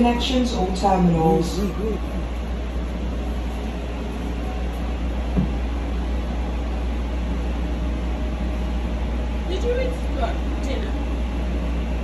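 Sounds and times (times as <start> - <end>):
short knock: 5.3 - 5.6.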